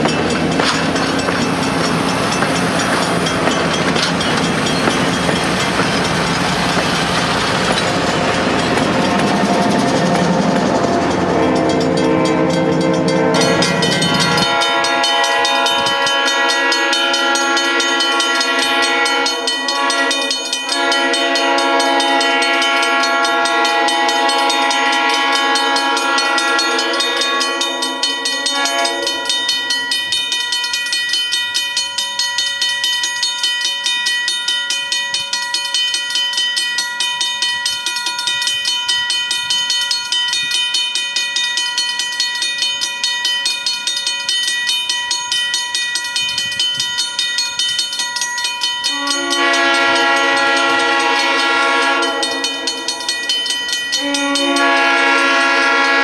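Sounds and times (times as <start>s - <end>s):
low train rumble: 0.0s - 34.5s, 35.4s - 56.0s
crossing warning bell ringing: 0.0s - 56.0s
distant locomotive horn: 6.5s - 29.8s, 48.9s - 53.1s, 53.9s - 56.0s.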